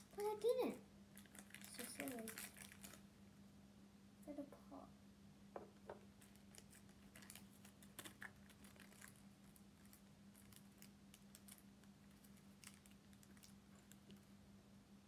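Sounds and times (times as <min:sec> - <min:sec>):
faint low hum: 0:00.0 - 0:15.0
plastic packaging clicks: 0:01.2 - 0:03.0, 0:06.2 - 0:14.2.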